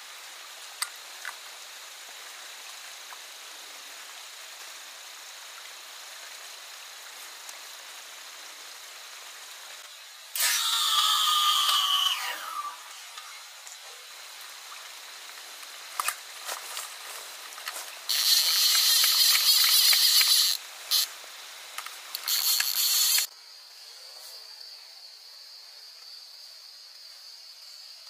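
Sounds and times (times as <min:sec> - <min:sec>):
fishing reel whirring: 0:10.4 - 0:12.6, 0:18.1 - 0:21.1, 0:22.2 - 0:23.3.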